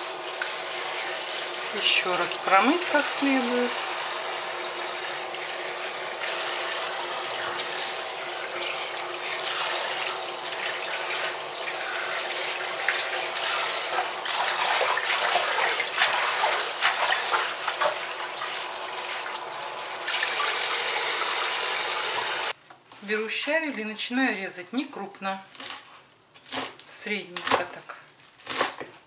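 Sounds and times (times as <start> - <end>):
tap water spraying: 0.0 - 22.6
water splashing on leaves: 7.2 - 18.8.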